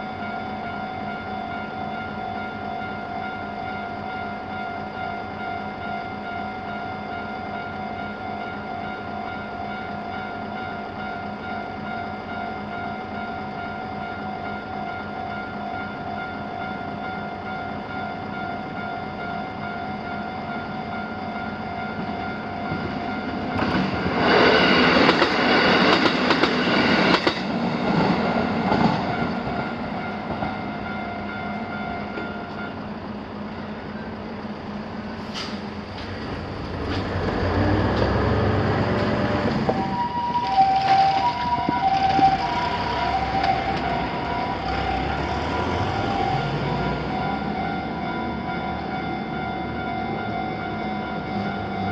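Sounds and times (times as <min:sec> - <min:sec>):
level-crossing warning bells ringing: 0:00.0 - 0:35.2, 0:35.8 - 0:51.9
train wheels clattering: 0:23.6 - 0:29.6
road vehicle rumbling: 0:33.1 - 0:39.8.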